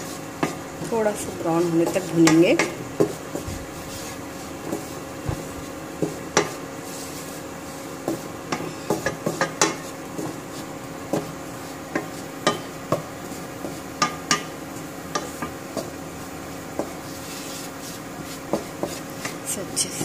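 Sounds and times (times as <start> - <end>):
steady hum: 0.0 - 20.0
wooden spoon scraping pan: 0.0 - 20.0
spoon knocking against pan: 8.1 - 9.8, 11.9 - 13.1, 13.7 - 16.0.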